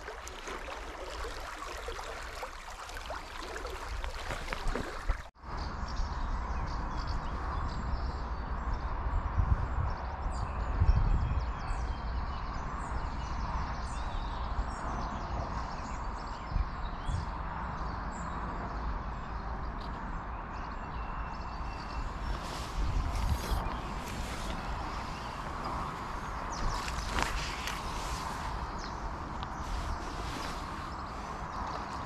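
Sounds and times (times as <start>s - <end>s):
river water rushing: 0.0s - 5.3s
wind rumbling on microphone: 0.0s - 32.0s.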